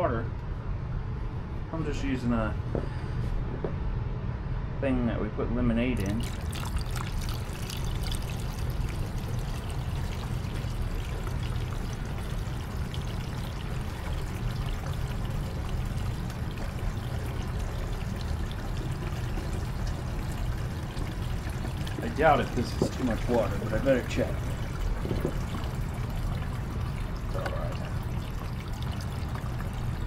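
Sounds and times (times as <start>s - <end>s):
water pouring into a tank: 6.0s - 30.0s.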